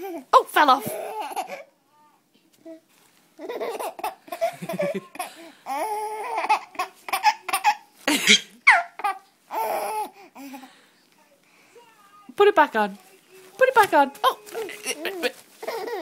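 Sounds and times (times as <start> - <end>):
baby laughing and squealing: 3.4 - 5.0, 5.7 - 10.2, 14.4 - 16.0.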